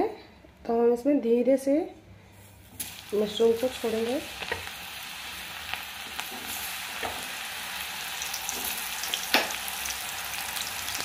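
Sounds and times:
mushrooms sizzling in hot oil: 2.7 - 11.0.

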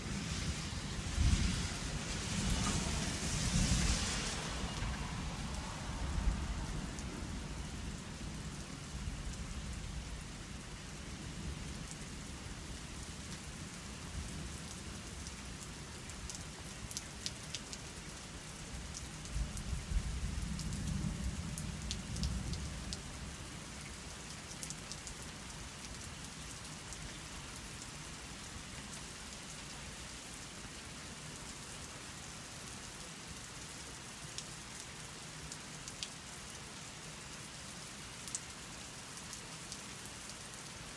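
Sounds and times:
rain falling: 0.0 - 40.9
drip and patter ticks: 16.3 - 17.8, 21.8 - 23.0, 35.5 - 36.2, 38.2 - 38.4.

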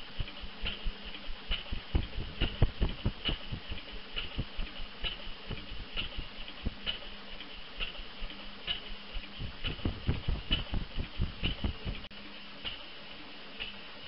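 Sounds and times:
sharp metallic clicks: 0.1 - 12.1
gas engine thudding: 9.2 - 12.1.

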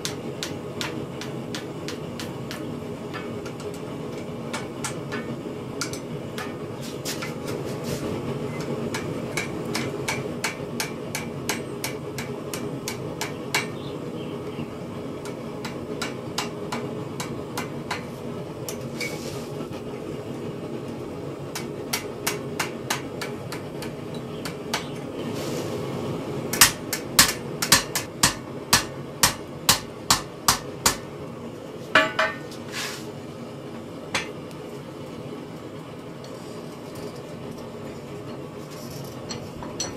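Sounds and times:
hammer tapping sheet steel: 0.0 - 7.5, 8.5 - 13.8, 15.2 - 18.1, 21.5 - 25.1, 26.5 - 31.1
steady low hum: 0.0 - 39.9.

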